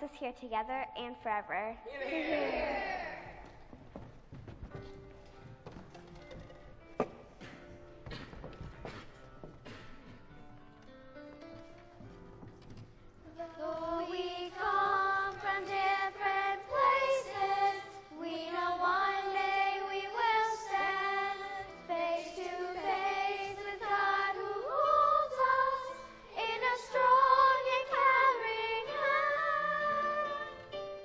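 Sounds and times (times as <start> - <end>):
children singing: 13.3 - 30.7.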